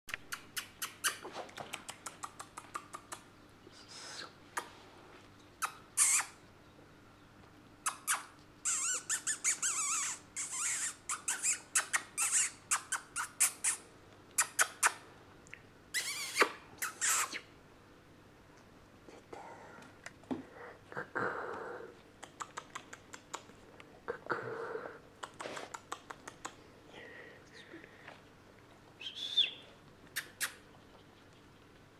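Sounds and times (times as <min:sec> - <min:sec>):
squeaky puppy growls and yips: 0:05.6 - 0:06.4, 0:07.8 - 0:13.8, 0:14.4 - 0:15.0, 0:16.0 - 0:17.5.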